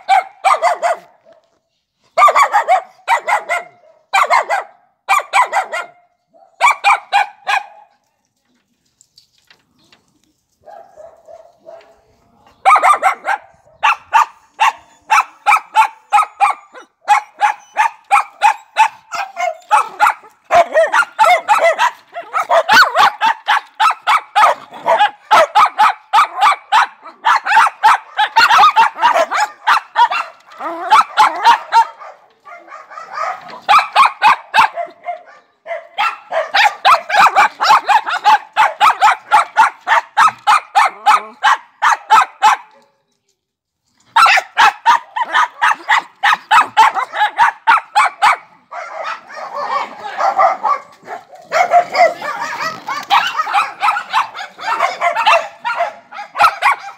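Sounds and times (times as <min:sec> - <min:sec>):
small dog yapping: 0:44.1 - 0:56.9.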